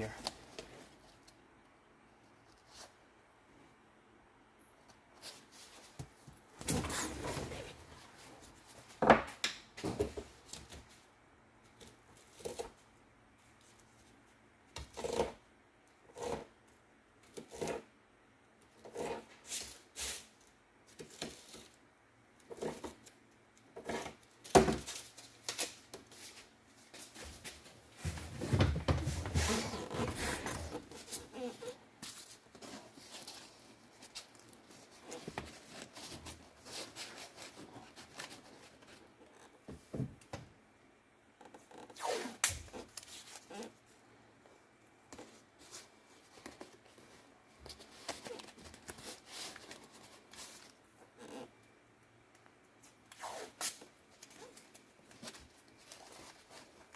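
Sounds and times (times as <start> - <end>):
cardboard rustling and scraping: 5.2 - 9.1, 22.5 - 23.1, 23.7 - 40.2, 45.1 - 51.5, 54.2 - 56.9.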